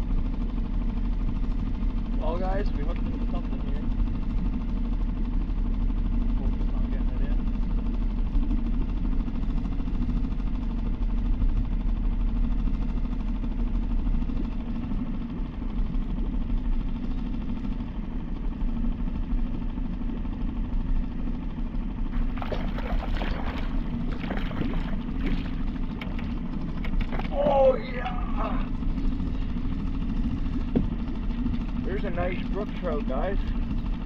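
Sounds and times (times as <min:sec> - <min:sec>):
small boat motor humming: 0:00.0 - 0:34.0
fish splashing at the surface: 0:22.2 - 0:26.4.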